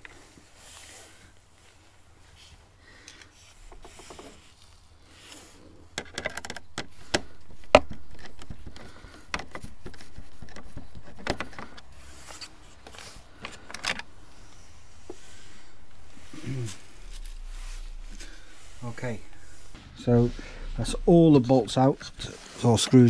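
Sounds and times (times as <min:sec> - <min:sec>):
rubbing and rustling: 0:00.0 - 0:23.0
clicks and knocks on plastic: 0:05.9 - 0:11.9.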